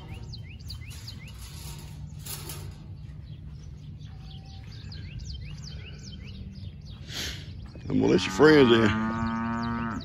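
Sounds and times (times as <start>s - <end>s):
low background rumble: 0.0s - 8.0s
small birds chirping: 0.0s - 10.0s.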